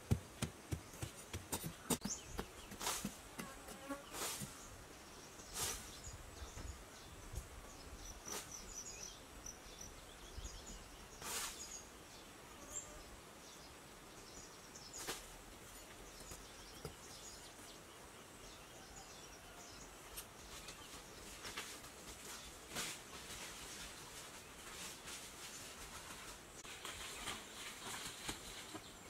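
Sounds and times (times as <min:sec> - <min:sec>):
digging tool scraping sandy soil: 0:02.6 - 0:04.7, 0:05.4 - 0:06.1, 0:08.2 - 0:08.8, 0:11.2 - 0:11.8.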